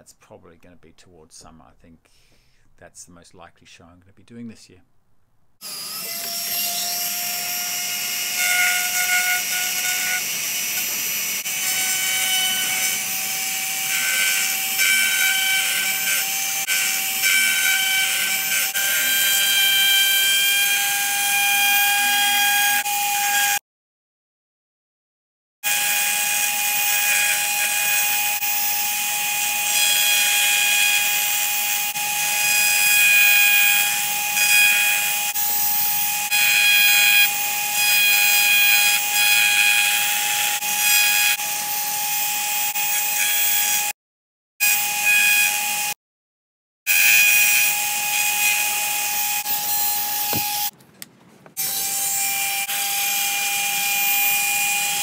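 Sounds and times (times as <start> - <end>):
rotary tool whining: 5.6 - 19.5, 46.9 - 50.8.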